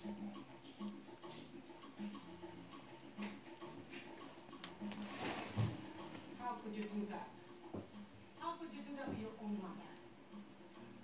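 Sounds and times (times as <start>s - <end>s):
crickets chirping: 0.0s - 11.0s
faint ticks of handling wire: 0.3s - 8.2s.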